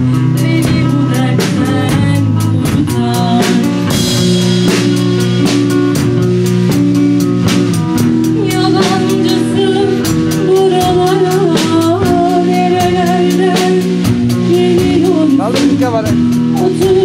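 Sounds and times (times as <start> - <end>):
drum kit beat: 0.0 - 17.0
person singing: 8.4 - 17.0.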